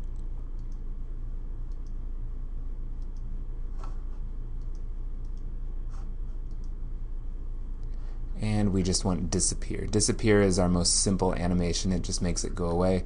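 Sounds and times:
computer mouse clicks: 0:00.0 - 0:00.8, 0:01.6 - 0:02.0, 0:03.0 - 0:04.0, 0:04.6 - 0:06.8
steady low hum: 0:00.0 - 0:13.0.

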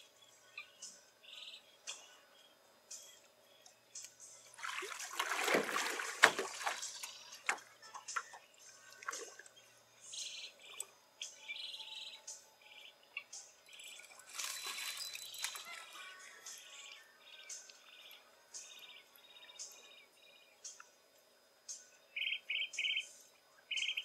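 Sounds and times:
water splashing: 0:04.5 - 0:08.3, 0:08.9 - 0:09.5
sharp slap on water: 0:05.2 - 0:06.8
bird chirps: 0:06.8 - 0:20.9, 0:21.7 - 0:24.0.

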